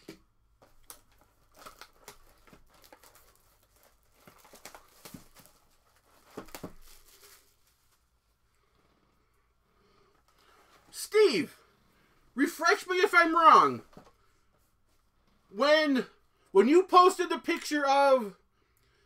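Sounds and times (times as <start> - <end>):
plastic wrap crinkling and tearing: 0.6 - 8.2.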